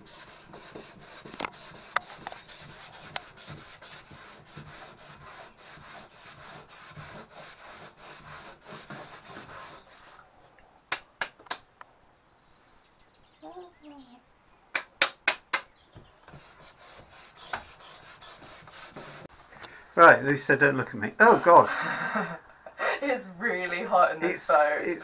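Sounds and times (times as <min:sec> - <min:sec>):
sandpaper rubbing on wood: 0:00.0 - 0:10.2, 0:16.3 - 0:19.3
sharp knocks: 0:14.8 - 0:17.7.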